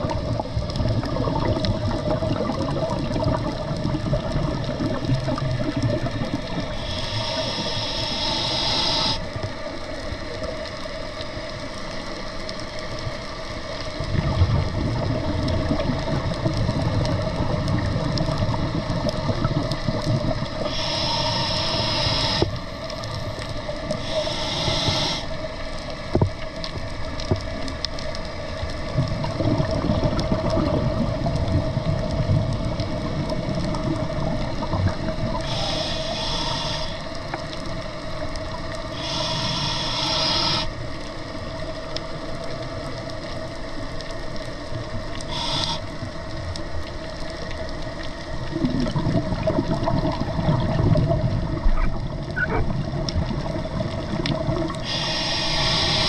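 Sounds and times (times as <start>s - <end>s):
steady hum: 3.1s - 9.8s, 18.8s - 26.3s, 29.8s - 56.0s
diver breathing through regulator: 6.6s - 9.4s, 20.6s - 22.7s, 23.9s - 25.5s, 35.3s - 37.5s, 38.9s - 40.8s, 45.2s - 46.2s, 54.7s - 56.0s.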